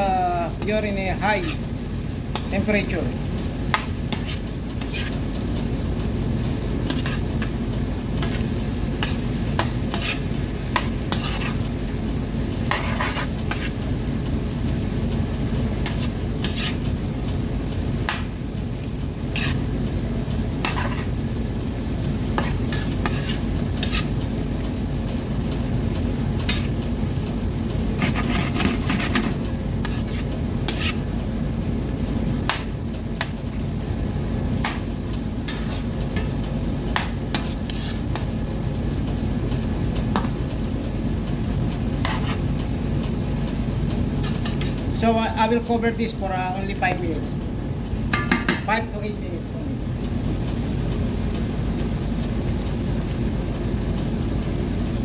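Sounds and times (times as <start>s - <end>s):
food sizzling in butter: 0.0s - 38.7s, 41.6s - 46.9s
fork scraping a pan: 1.3s - 1.6s, 4.1s - 5.2s, 6.9s - 7.5s, 8.2s - 11.6s, 12.7s - 13.8s, 15.8s - 16.8s, 19.3s - 19.7s, 20.6s - 21.1s, 22.4s - 24.1s, 26.4s - 26.8s, 28.0s - 31.1s, 35.4s - 36.3s, 37.3s - 38.2s, 42.0s - 42.4s, 44.2s - 44.8s.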